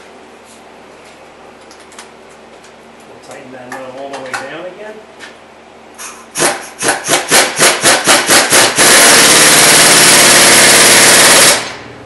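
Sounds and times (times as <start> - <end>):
impact wrench hammering: 6.3 - 11.8.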